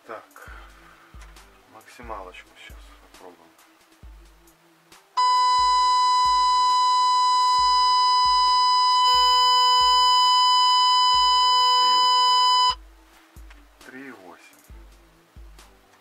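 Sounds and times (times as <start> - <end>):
harsh buzzy test tone: 5.2 - 12.8.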